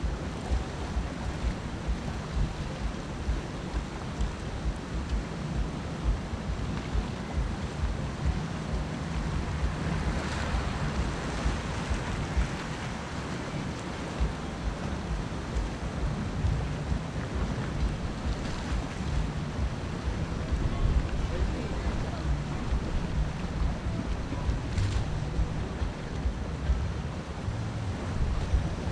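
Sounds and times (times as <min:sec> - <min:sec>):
sea surf on rocky shore: 0:00.0 - 0:28.9
wind buffeting microphone: 0:00.0 - 0:28.9.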